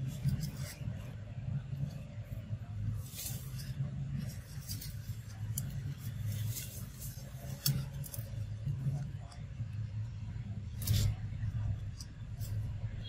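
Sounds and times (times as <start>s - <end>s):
low steady rumble: 0.0s - 13.0s
dry leaves crackling: 2.7s - 9.1s.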